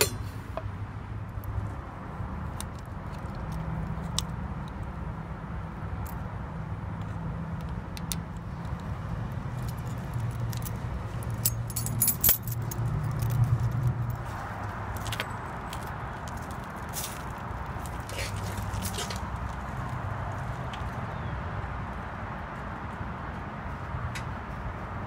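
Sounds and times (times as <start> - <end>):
keys jangling on key ring: 9.6 - 14.2.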